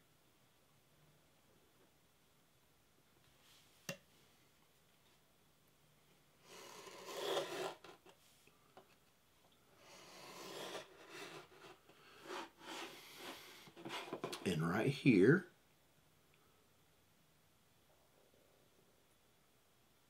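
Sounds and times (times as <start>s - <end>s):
knife blade scoring tape: 6.5s - 8.0s, 10.0s - 12.9s.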